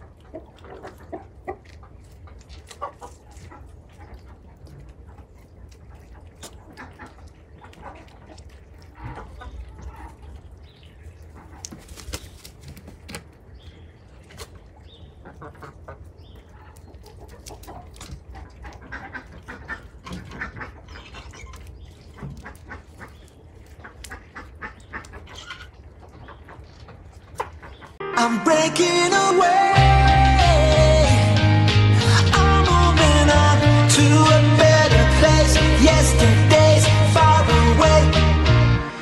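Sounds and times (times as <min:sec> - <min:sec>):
ducks quacking: 0:00.0 - 0:11.8, 0:14.4 - 0:28.0
hens clucking: 0:00.0 - 0:28.0
music: 0:28.0 - 0:39.0.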